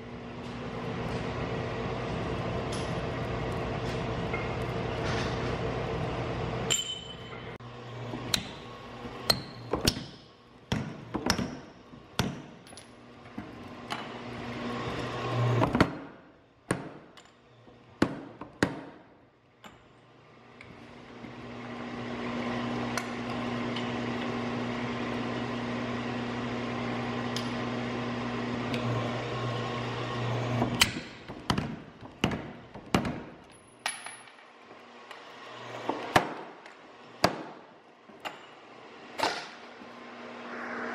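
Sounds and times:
power hammer motor hum: 21.0 - 31.6.

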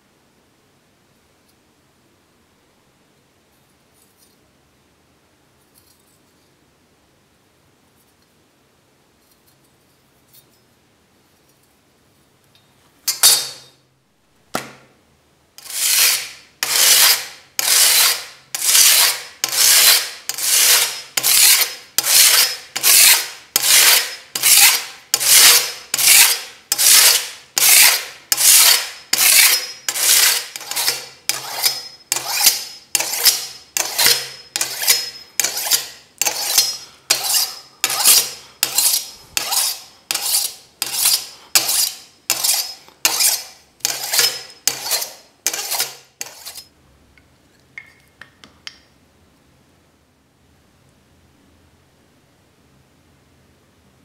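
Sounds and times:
knife scraping on sandpaper: 15.6 - 46.7.

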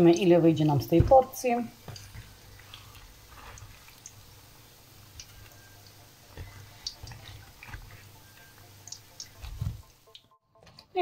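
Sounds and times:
doughnuts sizzling in oil: 0.0 - 11.0.

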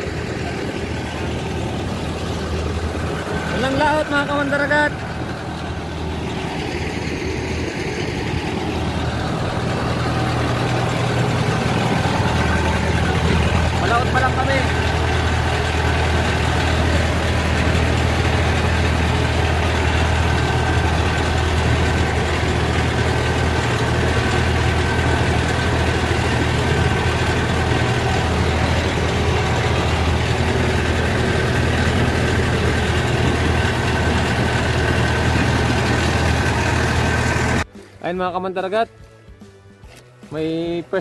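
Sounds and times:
boat diesel engine droning: 0.0 - 37.8.

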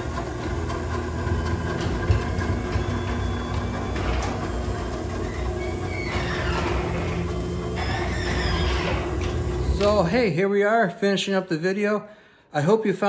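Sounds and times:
garage door opener running: 0.0 - 10.4.

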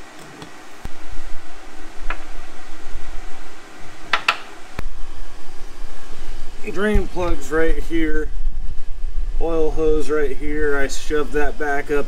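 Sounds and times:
low steady rumble: 0.0 - 12.0
sharp clicks and knocks: 4.1 - 4.5.

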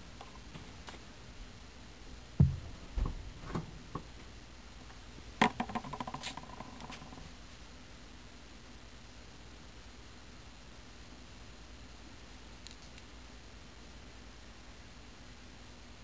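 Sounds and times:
dull thump: 2.4 - 4.1.

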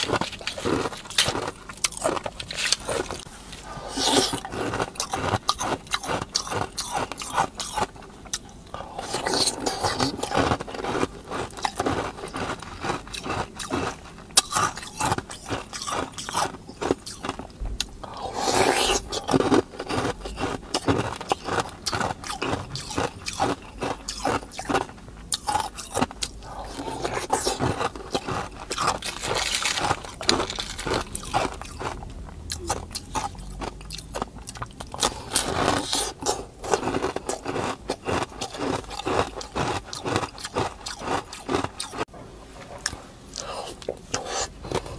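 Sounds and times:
crunching frozen ice cream: 0.0 - 42.1, 43.3 - 44.9.

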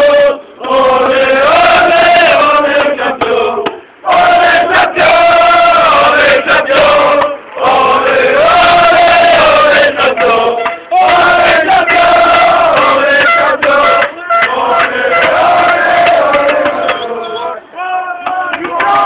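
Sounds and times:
crowd chanting: 0.0 - 19.0.

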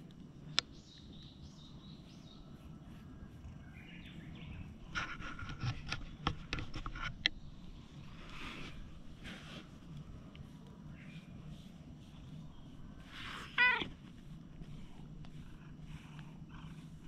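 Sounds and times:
birds chirping: 0.0 - 6.2, 10.1 - 17.0
low outdoor rumble: 0.0 - 17.0
brush scratching fur: 1.6 - 17.0.

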